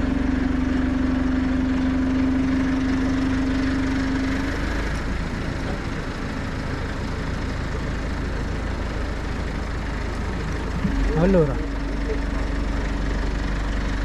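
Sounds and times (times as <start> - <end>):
engine running steadily: 0.0 - 14.0
steady low hum: 10.1 - 13.2.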